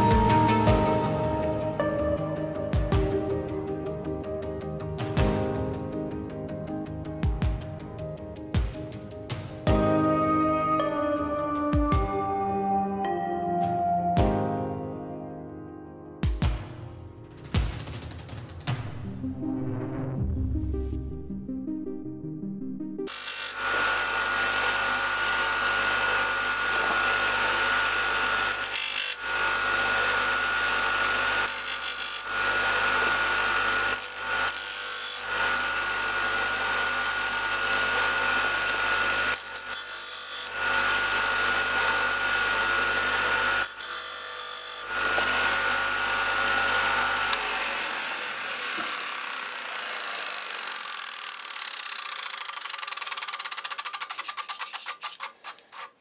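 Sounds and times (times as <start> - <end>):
disc sander running: 23.1 - 56.0
metal grinding on sander disc: 23.1 - 56.0.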